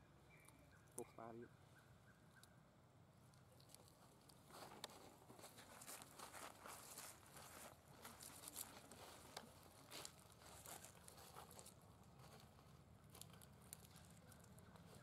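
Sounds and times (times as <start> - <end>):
dry leaves crackling and rustling: 5.4 - 15.0.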